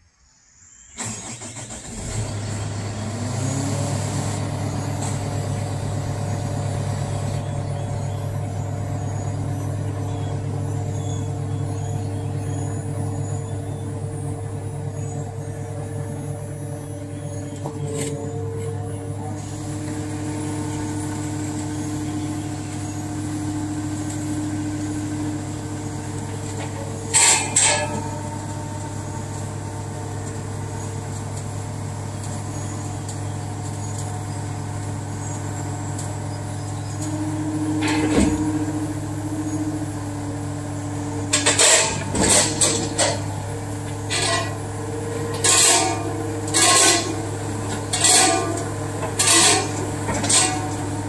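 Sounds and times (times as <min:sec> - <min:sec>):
diesel engine running: 0:01.0 - 0:51.0
metallic bangs and clanks: 0:45.3 - 0:50.8.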